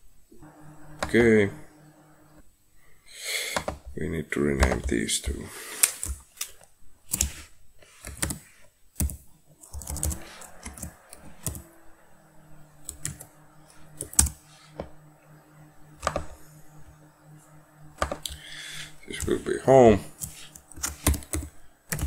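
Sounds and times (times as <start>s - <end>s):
faint low hum: 0.0s - 22.0s
computer keyboard typing: 7.1s - 7.4s, 8.0s - 8.4s, 9.0s - 14.4s, 17.9s - 22.0s.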